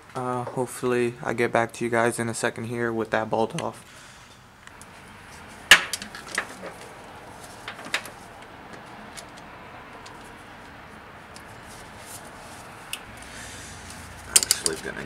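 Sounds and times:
hand tools clicking against metal: 13.9s - 14.9s.

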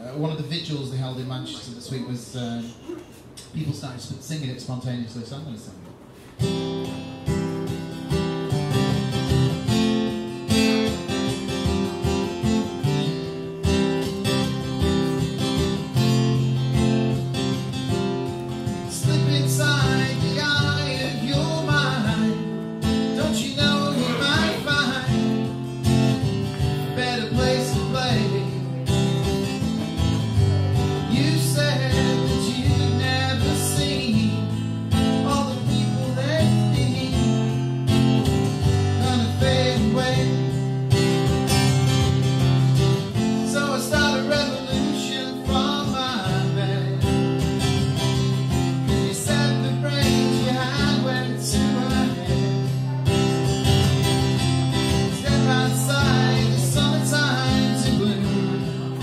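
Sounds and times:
acoustic guitar strumming: 6.1s - 59.0s
man singing: 18.8s - 25.7s, 26.6s - 29.1s, 31.0s - 37.7s, 38.7s - 40.8s, 43.3s - 47.2s, 48.8s - 53.4s, 54.8s - 59.0s.

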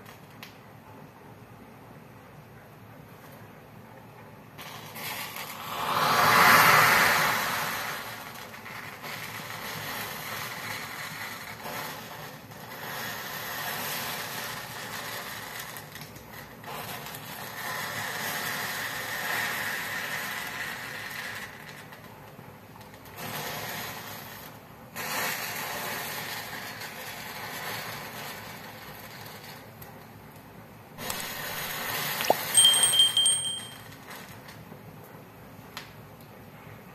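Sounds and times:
rushing hiss of flames: 4.7s - 15.6s, 23.1s - 29.7s
fire crackling and snapping: 26.4s - 32.5s.

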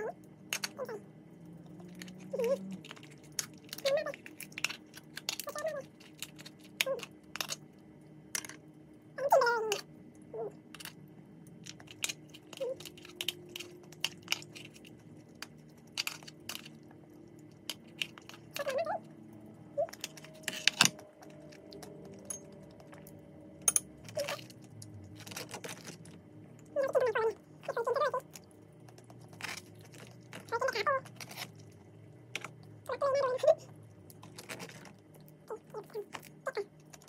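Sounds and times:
crab shell cracking: 1.8s - 8.7s, 10.6s - 18.8s, 19.8s - 26.2s, 28.2s - 32.7s.

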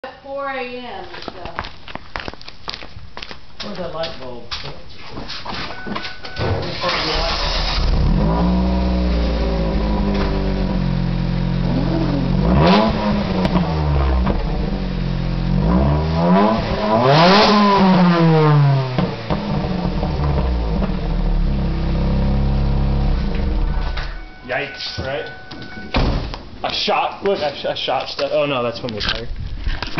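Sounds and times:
car engine idling and revving: 6.8s - 24.4s.

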